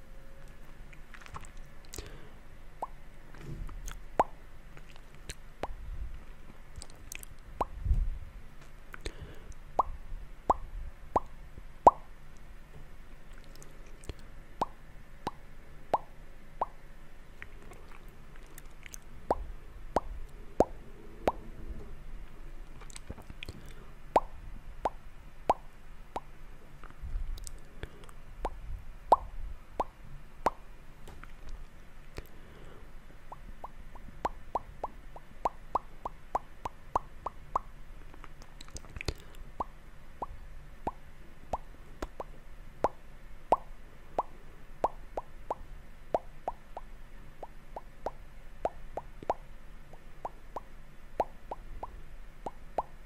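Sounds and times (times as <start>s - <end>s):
wet tongue and lip clicks: 0.5s - 2.2s, 3.7s - 5.8s, 6.7s - 7.8s, 8.9s - 11.3s, 13.3s - 15.4s, 17.4s - 21.4s, 22.7s - 30.6s, 33.3s - 45.6s, 46.2s - 52.9s.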